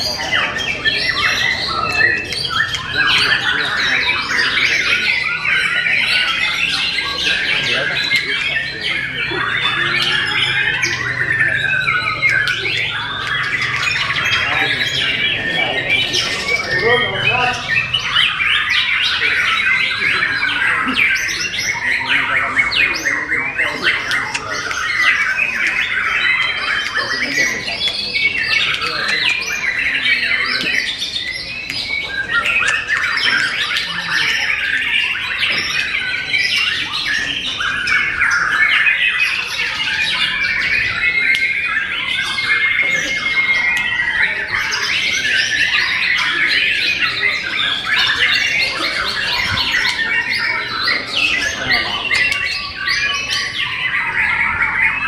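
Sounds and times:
chorus of birds singing: 0.0s - 55.0s.

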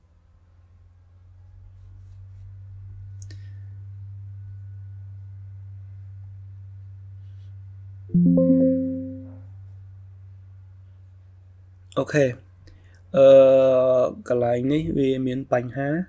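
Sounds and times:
low electrical hum: 0.0s - 16.0s
computer alert chime: 8.1s - 9.4s.

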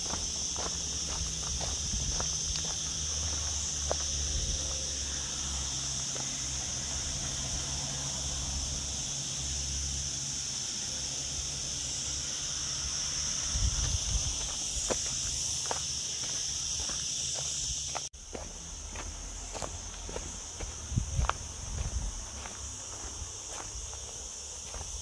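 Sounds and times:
footsteps on dirt path: 0.0s - 7.4s, 13.6s - 25.0s
cicadas buzzing: 0.0s - 25.0s.

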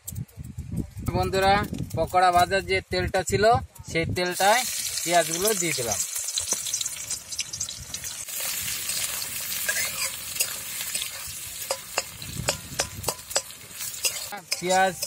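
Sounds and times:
onions sizzling in oil: 4.3s - 15.0s
metal spatula scraping wok: 8.0s - 15.0s.

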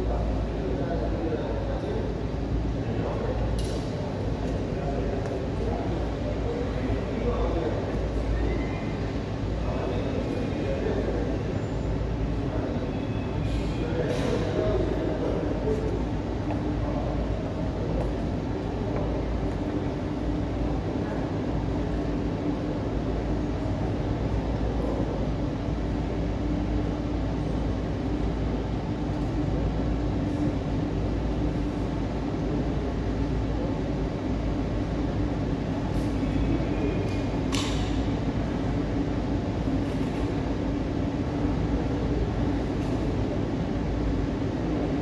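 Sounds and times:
jet engines idling: 0.0s - 45.0s.

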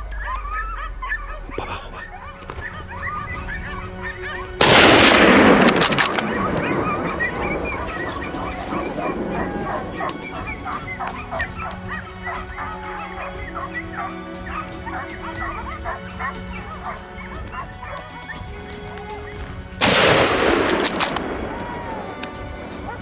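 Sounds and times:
dogs barking and yelping: 0.0s - 4.6s, 5.8s - 19.7s, 20.8s - 23.0s
rifle shot: 4.6s - 7.4s, 19.8s - 21.6s.

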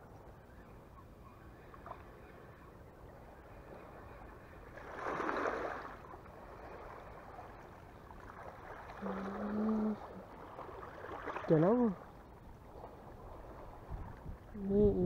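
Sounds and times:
sea water lapping on rocks: 4.8s - 12.2s.

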